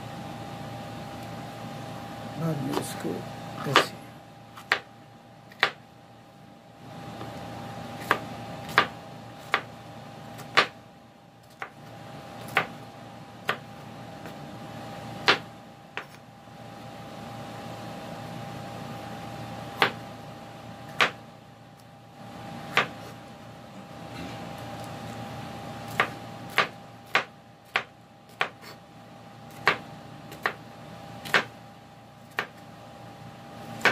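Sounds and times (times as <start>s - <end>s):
knife cutting on wooden board: 25.9s - 28.8s.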